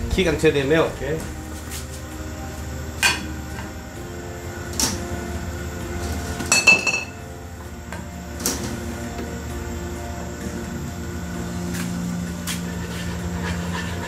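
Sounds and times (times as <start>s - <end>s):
low background hum: 0.0s - 14.0s
dishes clinking: 6.4s - 7.2s
dishes knocking: 6.4s - 7.2s.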